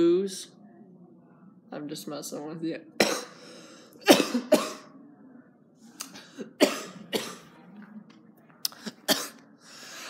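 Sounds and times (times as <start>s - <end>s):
boy coughing: 3.0s - 3.4s, 4.0s - 4.9s, 6.2s - 7.5s, 8.8s - 9.4s.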